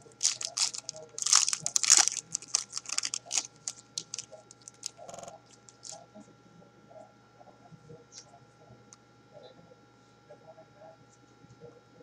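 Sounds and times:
foil wrapper crinkling and tearing: 0.0s - 6.0s
cards rustling: 0.1s - 6.0s.

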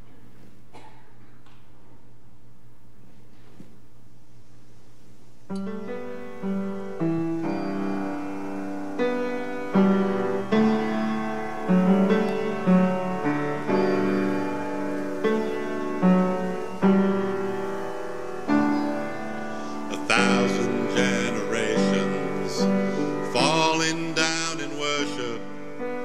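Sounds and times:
slow piano chords: 5.5s - 26.0s.

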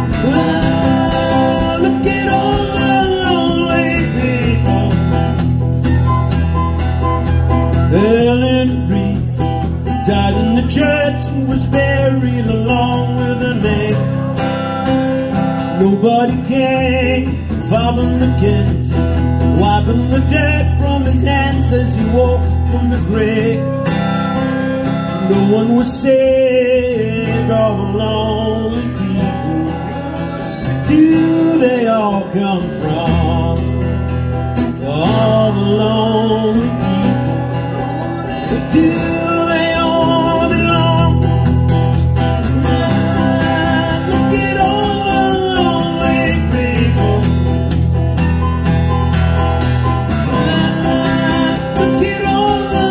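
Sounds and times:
strummed acoustic guitars: 0.0s - 52.9s
flute playing: 5.8s - 8.6s.

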